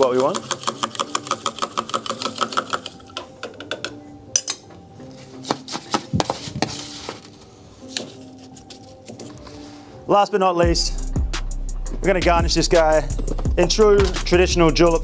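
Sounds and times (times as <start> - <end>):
spoon churning ice in metal cup: 0.0 - 3.3.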